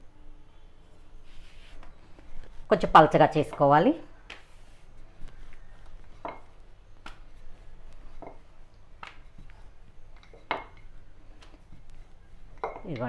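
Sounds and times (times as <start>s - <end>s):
rolling pin rolling dough: 4.5s - 13.0s.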